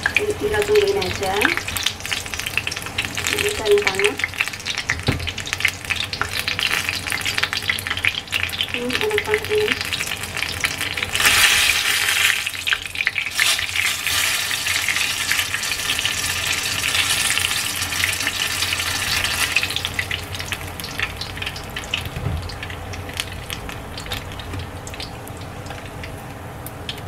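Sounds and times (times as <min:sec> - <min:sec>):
chilies deep-frying in oil: 0:00.0 - 0:27.0.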